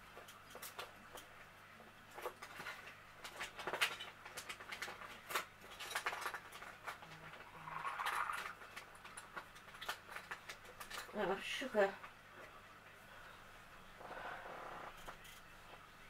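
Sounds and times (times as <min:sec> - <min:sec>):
objects clicking and rustling: 0:00.0 - 0:01.4, 0:02.1 - 0:11.2.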